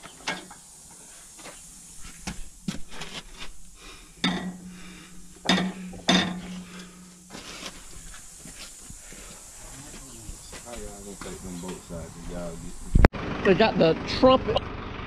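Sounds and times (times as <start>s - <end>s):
steady low hum: 1.0s - 14.4s
metal clanks and knocks: 4.2s - 7.2s.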